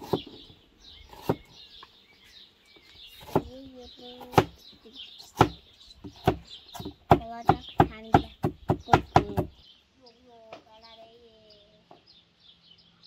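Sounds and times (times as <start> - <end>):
cleaver chopping on wooden board: 0.0 - 0.4, 1.1 - 1.4, 3.2 - 3.5, 4.2 - 4.6, 5.3 - 9.5.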